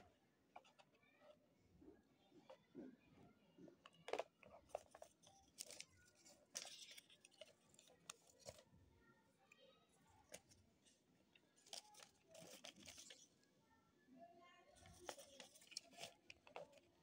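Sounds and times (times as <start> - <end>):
paper leaflet rustling: 4.6 - 8.6, 11.6 - 13.3, 14.8 - 16.9.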